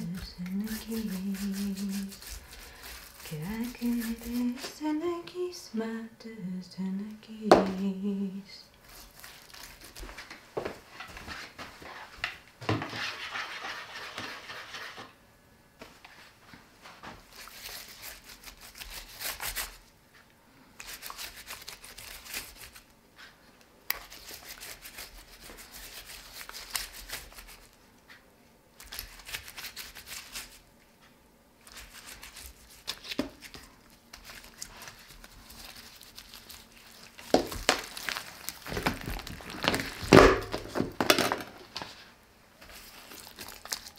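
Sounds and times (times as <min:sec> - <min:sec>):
woman humming: 0:00.0 - 0:02.2, 0:03.3 - 0:08.7
hands rubbing marinade into meat: 0:00.0 - 0:04.8, 0:08.8 - 0:10.2, 0:17.2 - 0:19.8, 0:20.8 - 0:22.9, 0:23.9 - 0:27.8, 0:28.8 - 0:30.7, 0:31.6 - 0:40.0, 0:42.6 - 0:43.9.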